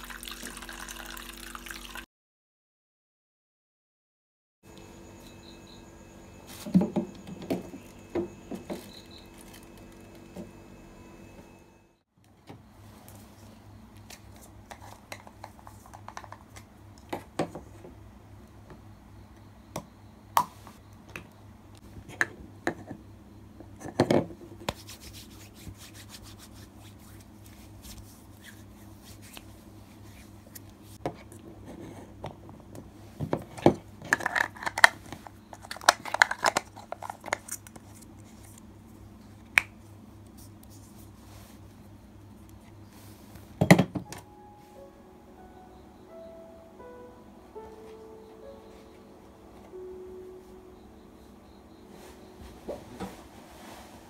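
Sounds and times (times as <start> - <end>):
low steady hum: 4.7 - 54.0
refrigerator hum: 4.7 - 54.0.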